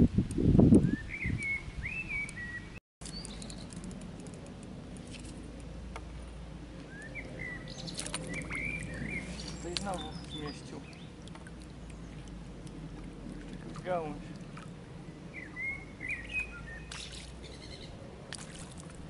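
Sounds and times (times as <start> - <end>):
small birds chirping: 0.9 - 4.3, 6.7 - 13.0, 13.6 - 18.9.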